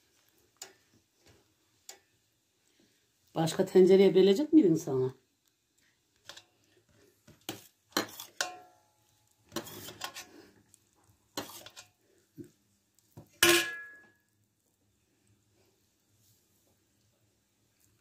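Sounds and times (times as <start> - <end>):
metal kitchenware clinking: 7.9 - 8.8, 13.4 - 14.1
scraping rustle: 9.5 - 10.5.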